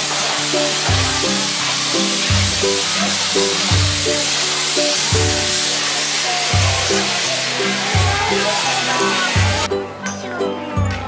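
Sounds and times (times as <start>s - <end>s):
steady hiss: 0.0s - 9.7s
background music with bass line: 6.5s - 11.0s.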